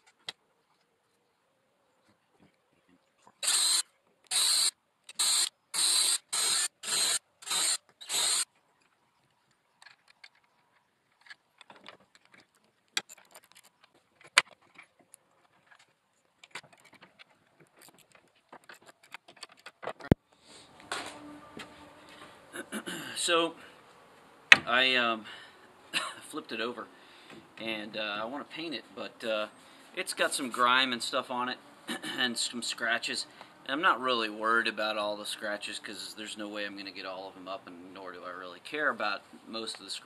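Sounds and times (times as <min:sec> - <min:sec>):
metal parts clicking and clinking: 0:09.8 - 0:20.1.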